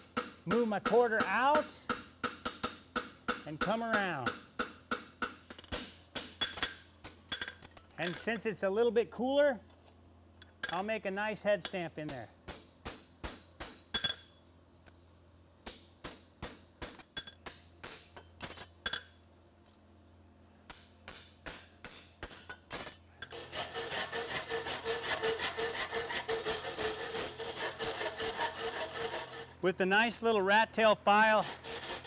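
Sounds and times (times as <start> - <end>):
hammer striking punch on horseshoe: 0.0 - 6.8
file rasping on metal: 23.3 - 29.6, 31.2 - 32.0.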